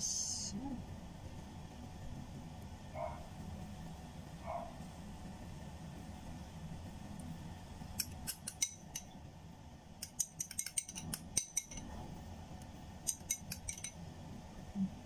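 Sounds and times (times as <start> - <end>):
metal spoon clinking on ceramic: 10.0 - 11.8, 13.1 - 14.0.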